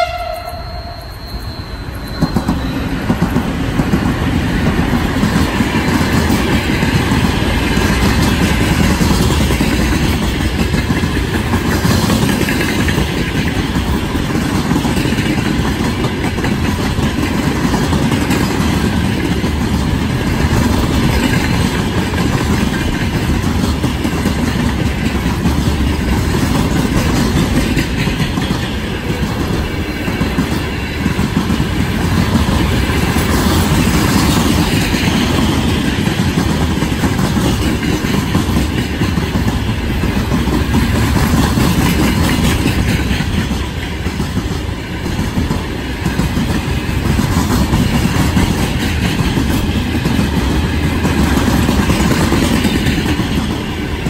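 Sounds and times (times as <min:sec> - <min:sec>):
train horn blast: 0:00.0 - 0:03.0
freight train wagons rumbling: 0:00.0 - 0:54.0.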